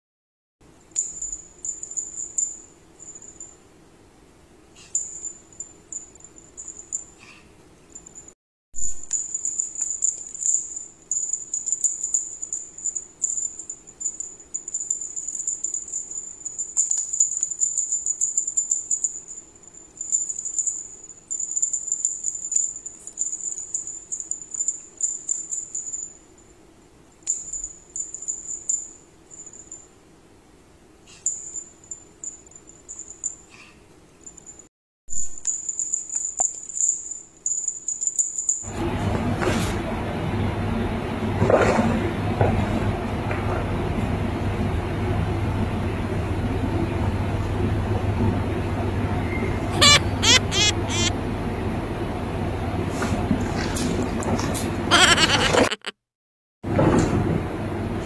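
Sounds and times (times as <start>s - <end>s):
small bell jingling: 0.9s - 3.6s, 4.8s - 7.3s, 7.9s - 8.4s, 9.1s - 26.6s, 27.2s - 29.9s, 31.1s - 33.6s, 34.2s - 34.7s, 35.4s - 38.7s, 49.8s - 51.1s.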